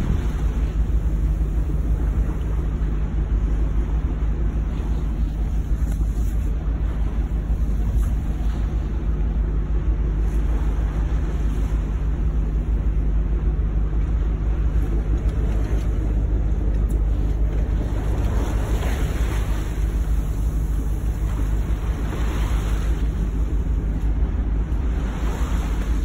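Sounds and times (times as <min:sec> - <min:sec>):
wind noise: 0:00.0 - 0:12.9
boat engine drone: 0:00.0 - 0:26.0
water rushing: 0:00.0 - 0:26.0.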